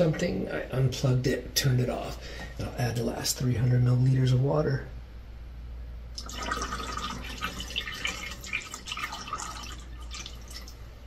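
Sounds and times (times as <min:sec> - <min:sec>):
water trickling and splashing into tank: 0:06.2 - 0:10.9.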